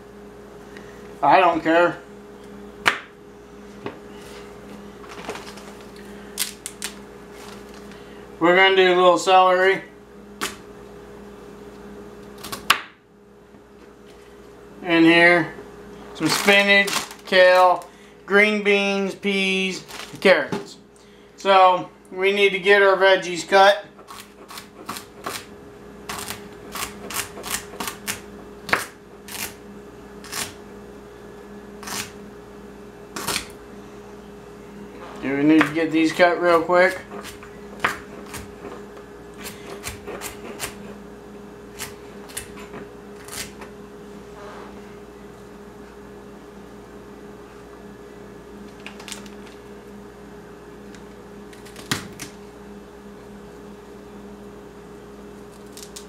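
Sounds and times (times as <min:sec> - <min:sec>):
faint steady hum: 0:00.0 - 0:56.0
knife chopping on wooden board: 0:37.0 - 0:38.8.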